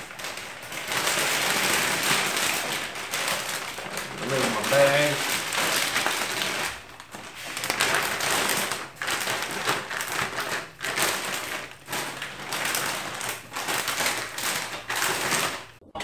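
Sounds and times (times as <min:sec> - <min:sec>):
plastic bag crinkling: 0:00.0 - 0:15.8.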